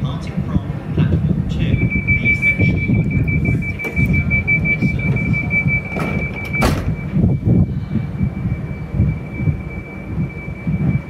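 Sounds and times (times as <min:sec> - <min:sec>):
train low rumble: 0:00.0 - 0:11.0
high-pitched warning beep: 0:01.5 - 0:11.0
sliding doors thudding shut: 0:05.1 - 0:07.2.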